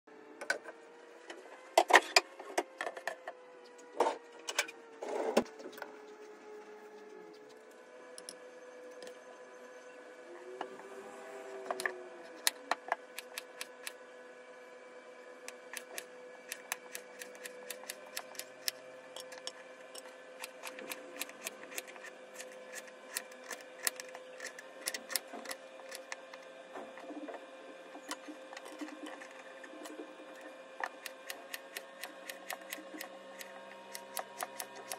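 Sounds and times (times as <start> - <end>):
faint hum: 0.1 - 34.9.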